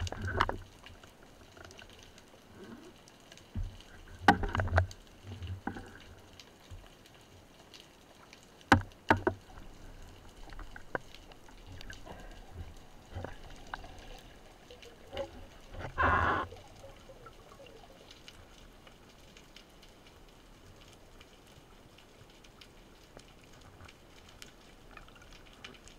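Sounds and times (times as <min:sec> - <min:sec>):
faint clicks: 0:00.0 - 0:25.9
underwater water noise: 0:00.0 - 0:25.9
sharp underwater knocks: 0:08.7 - 0:09.5.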